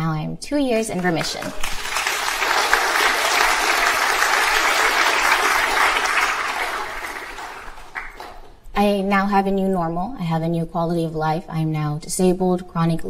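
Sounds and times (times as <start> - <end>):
audience applauding: 0.9 - 8.6.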